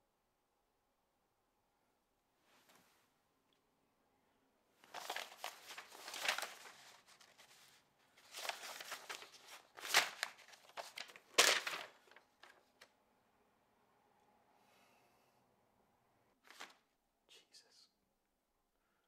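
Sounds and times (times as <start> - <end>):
paper rustling and crumpling: 4.8 - 12.9, 16.4 - 16.8.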